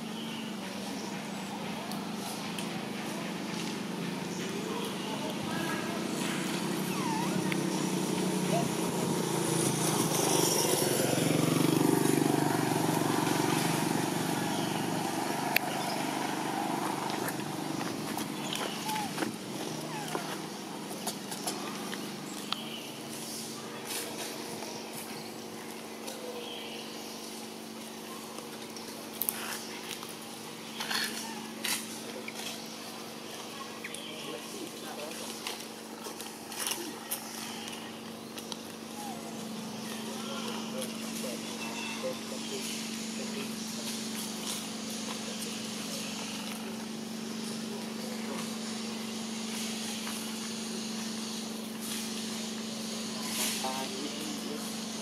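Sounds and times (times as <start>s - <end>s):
low mechanical hum: 0.0s - 55.0s
faint chirps: 36.6s - 55.0s.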